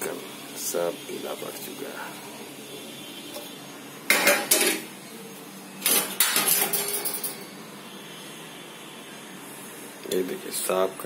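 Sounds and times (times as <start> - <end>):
steel plates and utensils clattering: 4.1 - 4.9, 5.8 - 7.5.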